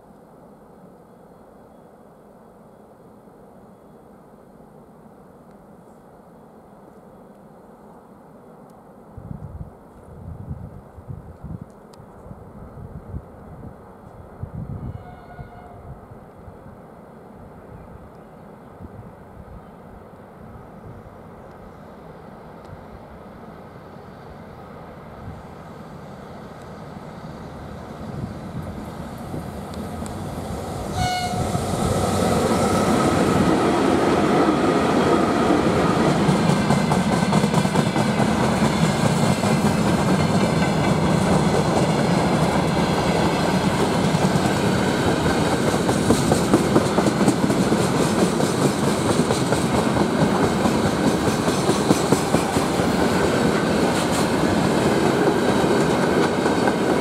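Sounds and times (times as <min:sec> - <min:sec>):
train horn toot: 0:14.7 - 0:16.0, 0:30.9 - 0:31.8
freight train rumbling past: 0:19.0 - 0:57.0.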